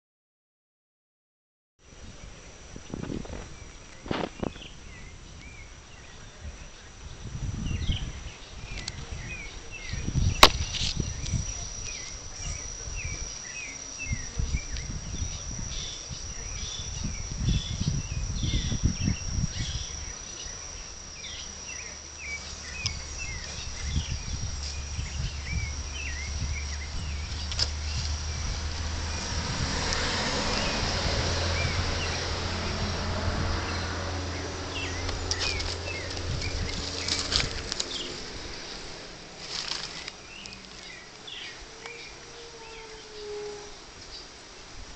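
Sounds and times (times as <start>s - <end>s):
insect chirps: 1.8s - 44.9s
high-pitched insect drone: 1.9s - 44.0s
thumps and rustling near microphone: 2.9s - 4.7s
sharp click: 10.4s - 11.4s
rushing rustle: 34.8s - 44.9s.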